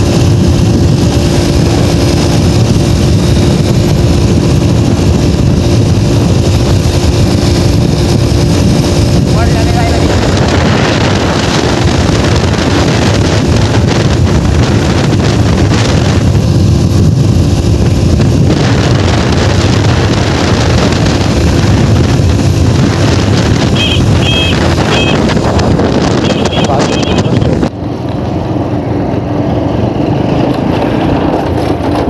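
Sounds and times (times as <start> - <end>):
small engine drone: 0.0 - 32.0
wind rushing over microphone: 0.0 - 32.0
short high beeps: 23.8 - 25.3, 26.2 - 27.5.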